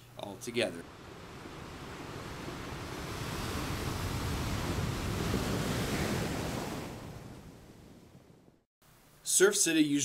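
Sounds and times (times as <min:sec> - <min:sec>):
ocean wave washing in: 0:00.8 - 0:08.4.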